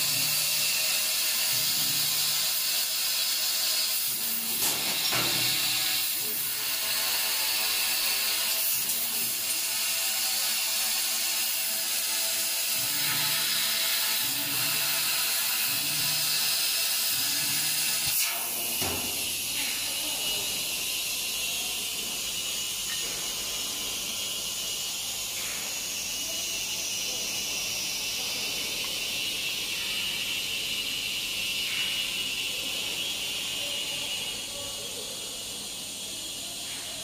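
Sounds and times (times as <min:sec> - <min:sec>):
laser cutter hiss: 0:00.0 - 0:37.0.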